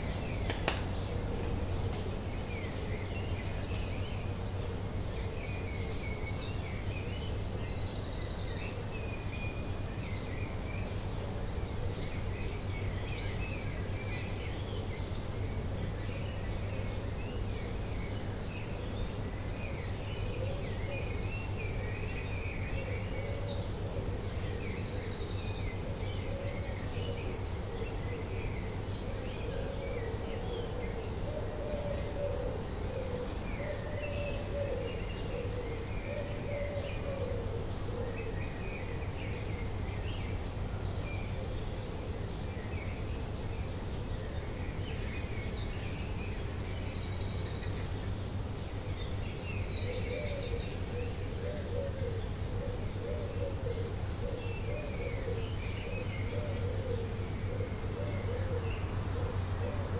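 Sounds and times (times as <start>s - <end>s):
birds chirping and trilling: 17.3s - 59.9s.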